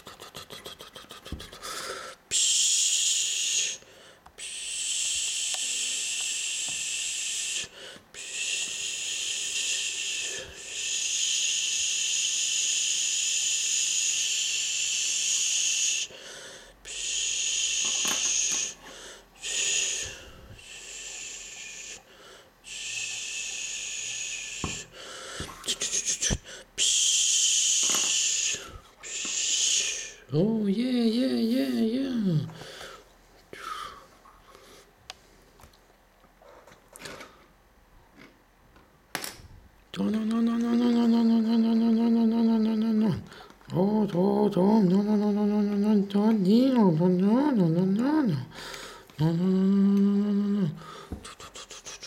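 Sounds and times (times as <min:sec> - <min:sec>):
person making hissing sounds: 0:00.0 - 0:30.6, 0:31.5 - 0:34.9, 0:47.0 - 0:52.0.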